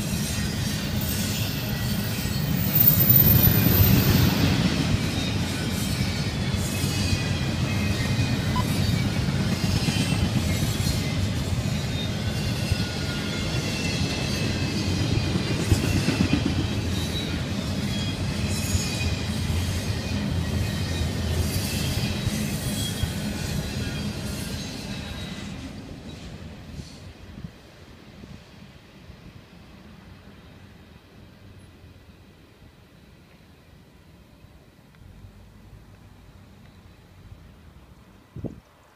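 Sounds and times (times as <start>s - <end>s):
high squealing of wheels: 0.0s - 27.1s
train wheels rumbling on rail: 0.0s - 33.7s.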